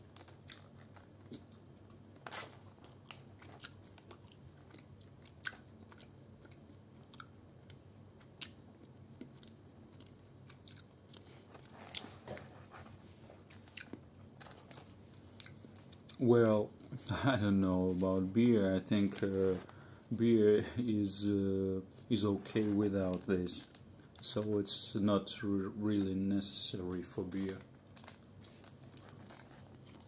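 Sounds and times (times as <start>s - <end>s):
person chewing crunchy snack: 0.0s - 12.4s, 13.4s - 16.2s, 27.9s - 30.0s.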